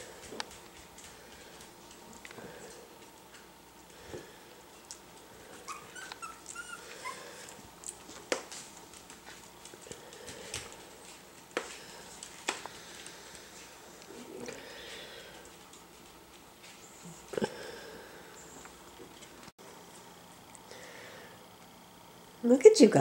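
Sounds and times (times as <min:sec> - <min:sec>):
puppies whimpering: 0:05.5 - 0:07.6.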